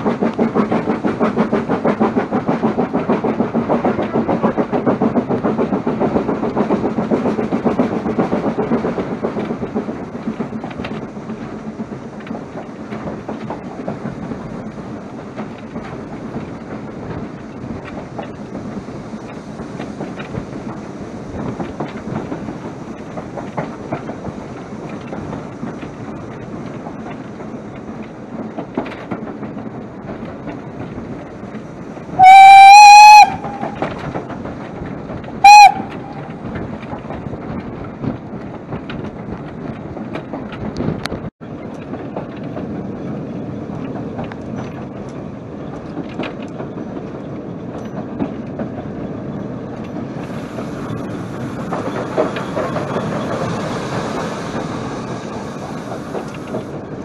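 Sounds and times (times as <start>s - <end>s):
rail clatter: 0.0s - 57.0s
steam locomotive running: 0.0s - 57.0s
steam whistle blast: 32.2s - 33.8s, 35.4s - 36.3s.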